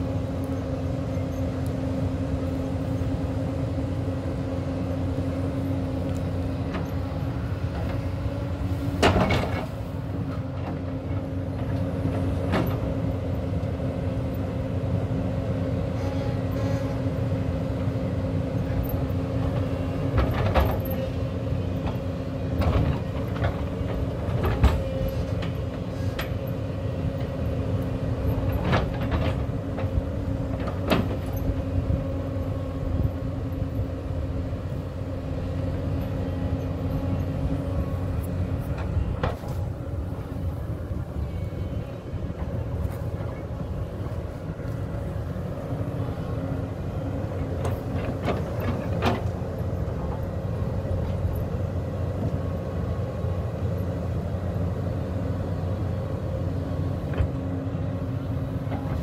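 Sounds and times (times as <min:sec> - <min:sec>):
excavator engine and hydraulics: 0:00.0 - 0:59.0
knocks and clunks: 0:08.9 - 0:11.0.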